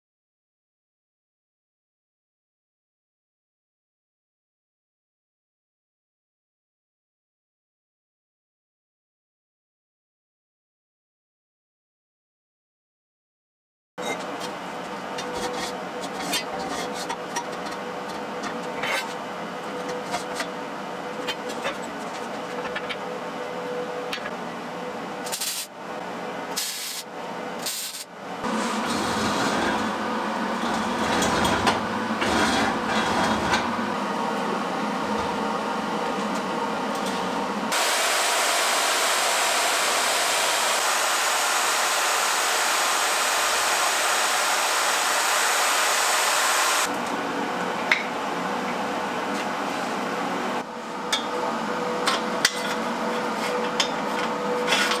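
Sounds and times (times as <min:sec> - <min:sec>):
noisy metal work: 0:36.9 - 0:46.9
magnetic drill boring steel: 0:37.7 - 0:46.9.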